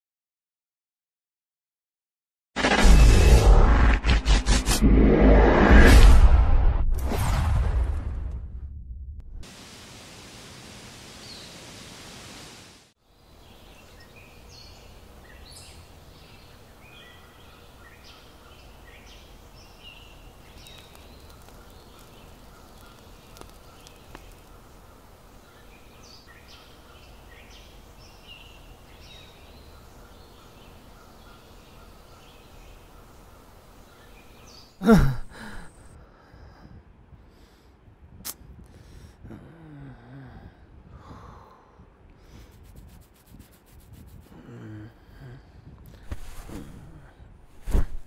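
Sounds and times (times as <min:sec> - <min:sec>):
steady hiss: 0:09.4 - 0:13.0
small birds chirping: 0:13.1 - 0:35.7.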